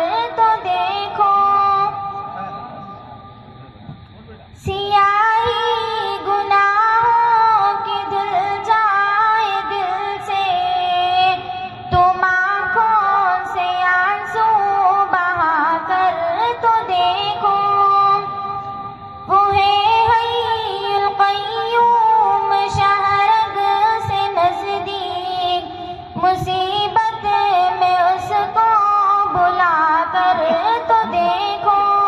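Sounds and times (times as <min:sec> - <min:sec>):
girl singing into microphone: 0:00.0 - 0:02.4, 0:04.6 - 0:32.0.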